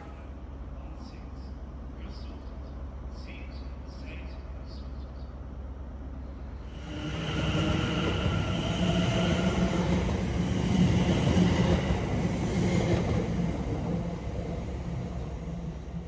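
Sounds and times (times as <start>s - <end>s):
train wheels rumbling: 6.5s - 16.0s.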